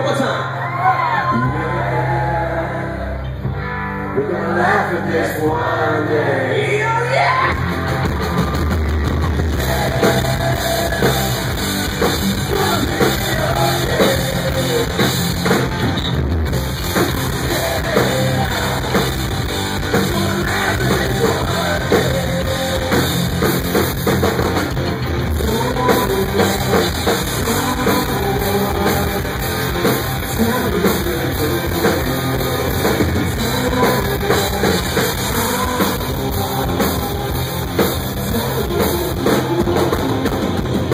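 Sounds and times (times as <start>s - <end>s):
bass guitar: 0.0s - 40.9s
electric guitar: 0.0s - 40.9s
drum kit: 7.4s - 40.9s
person singing: 12.3s - 15.6s, 17.0s - 23.8s, 25.3s - 40.9s.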